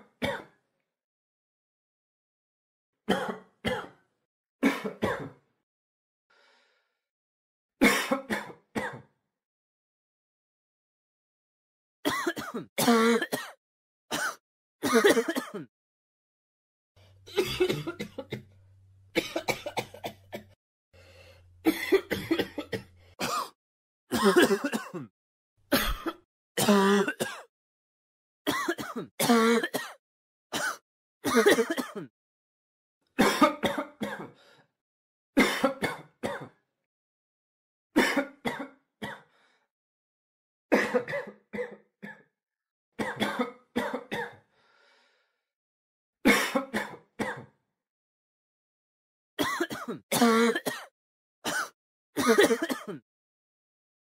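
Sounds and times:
person coughing: 0:03.1 - 0:04.0, 0:04.6 - 0:05.4, 0:07.8 - 0:09.1, 0:12.1 - 0:15.7, 0:17.3 - 0:18.4, 0:19.2 - 0:20.5, 0:21.7 - 0:25.1, 0:25.7 - 0:27.5, 0:28.5 - 0:30.0, 0:30.6 - 0:32.1, 0:33.2 - 0:34.3, 0:35.4 - 0:36.6, 0:38.0 - 0:39.3, 0:40.7 - 0:42.3, 0:43.0 - 0:44.4, 0:46.3 - 0:47.5, 0:49.4 - 0:50.9, 0:51.5 - 0:53.0.

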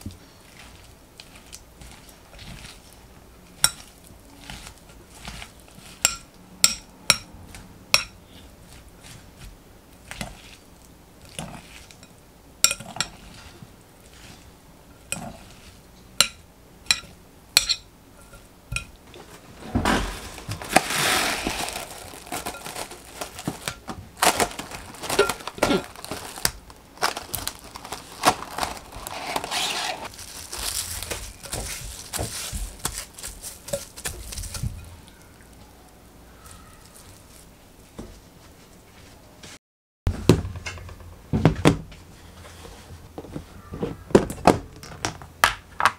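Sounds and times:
plastic cling wrap crinkling: 0:19.2 - 0:35.2, 0:36.3 - 0:37.6.

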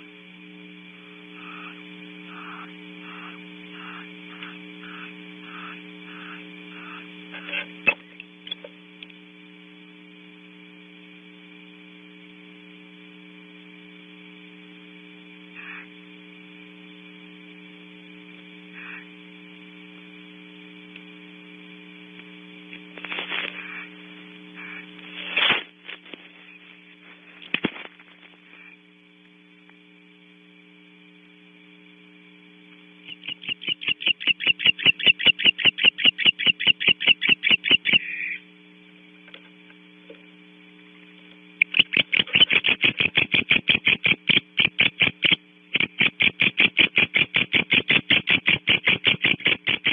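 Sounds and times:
electrical mains hum: 0:00.0 - 0:49.9
rapid sharp pulses: 0:33.0 - 0:38.2, 0:41.6 - 0:49.9.

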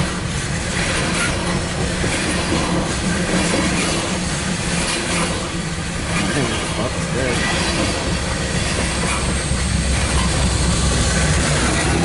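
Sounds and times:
freight cars clattering: 0:00.0 - 0:12.0
train wheels rumbling on rail: 0:00.0 - 0:12.0.

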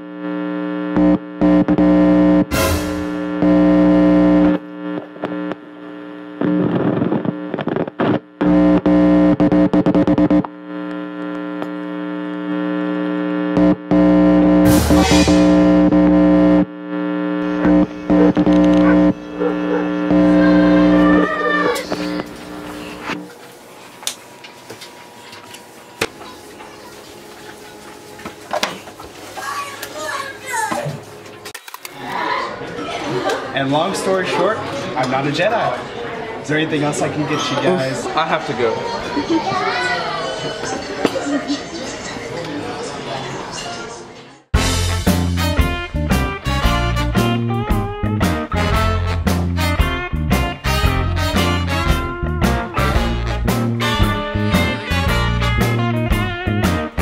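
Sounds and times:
electronic buzzing drone: 0:00.0 - 0:23.4.

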